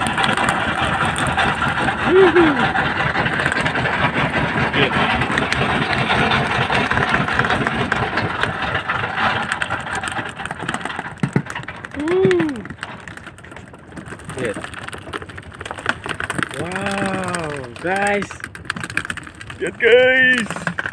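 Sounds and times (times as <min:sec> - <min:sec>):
boat engine running: 0:00.0 - 0:20.9
person calling out: 0:02.1 - 0:02.7, 0:12.0 - 0:12.7.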